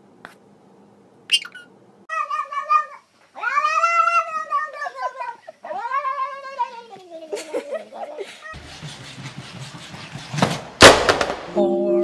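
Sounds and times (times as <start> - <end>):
parakeet squawk: 1.3 - 1.7
cat meowing: 2.1 - 7.3.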